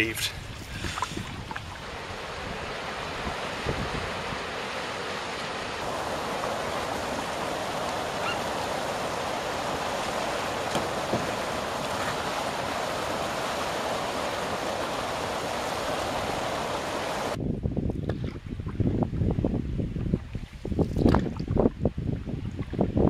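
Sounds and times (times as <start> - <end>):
water rushing over a weir: 1.1 - 17.4.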